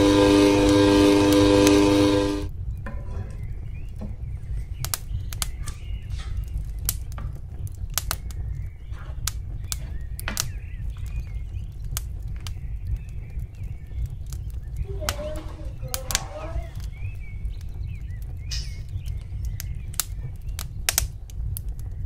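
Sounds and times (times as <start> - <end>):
low steady hum: 0.0 - 4.8.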